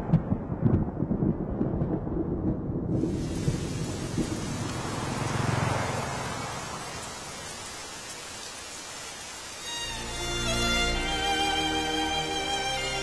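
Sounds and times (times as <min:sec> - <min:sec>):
thunder rumbling: 0:00.0 - 0:07.1
heavy rain pouring: 0:00.0 - 0:13.0.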